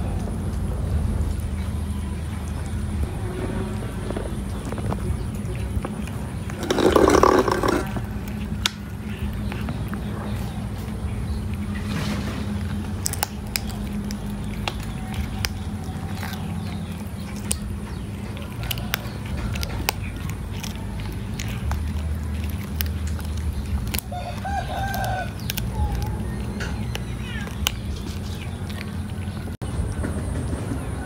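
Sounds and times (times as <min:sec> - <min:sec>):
steady low rumble: 0:00.0 - 0:31.0
cat chewing meat: 0:01.0 - 0:29.6
chickens clucking: 0:03.2 - 0:12.9.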